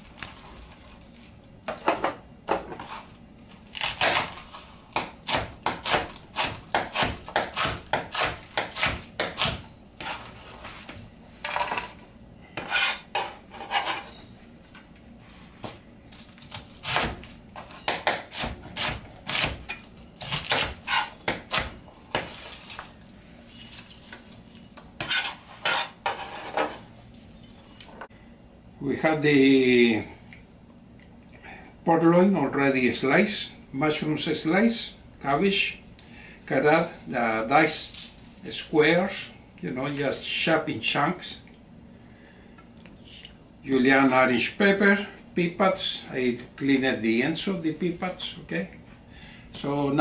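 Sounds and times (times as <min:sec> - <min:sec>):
knife chopping cabbage on board: 0:03.8 - 0:10.2, 0:16.5 - 0:22.4.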